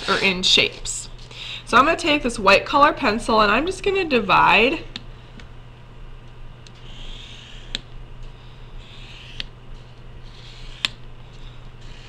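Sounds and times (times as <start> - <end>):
pencil scratching on paper: 6.8 - 7.8, 8.8 - 9.5, 10.2 - 12.0.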